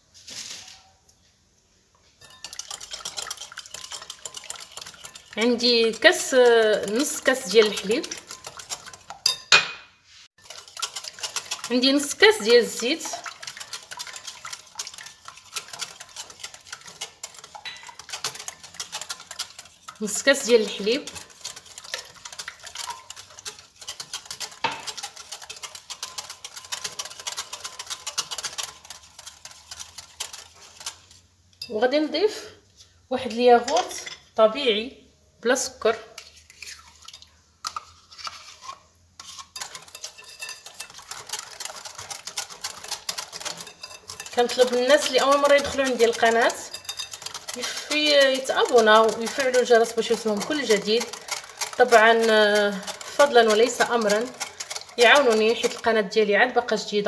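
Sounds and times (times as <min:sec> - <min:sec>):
spoon tapping and scraping cup: 0:02.2 - 0:31.0, 0:36.2 - 0:55.9
fork whisking eggs in glass bowl: 0:02.2 - 0:31.9, 0:36.1 - 0:57.0
wire whisk clicking on glass bowl: 0:42.4 - 0:55.9.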